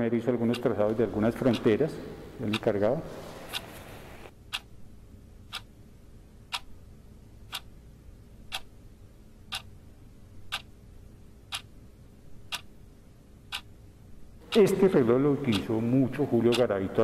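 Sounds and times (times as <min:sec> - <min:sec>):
clock ticking: 0:02.4 - 0:02.8, 0:04.5 - 0:04.7, 0:05.5 - 0:05.7, 0:06.5 - 0:06.8, 0:07.5 - 0:07.8, 0:08.5 - 0:08.8, 0:09.5 - 0:09.7, 0:10.5 - 0:10.8, 0:11.5 - 0:11.7, 0:12.5 - 0:12.8, 0:13.5 - 0:13.7, 0:14.4 - 0:15.8, 0:16.5 - 0:16.8.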